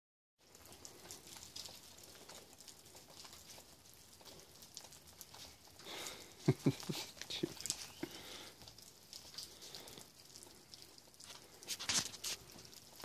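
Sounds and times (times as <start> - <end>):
footsteps crunching in snow: 11.7 - 12.5.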